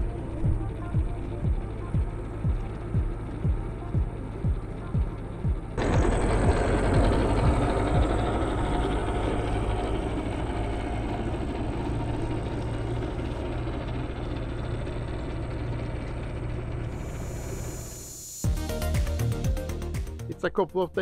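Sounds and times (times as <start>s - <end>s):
tractor diesel engine running: 0.0s - 20.1s.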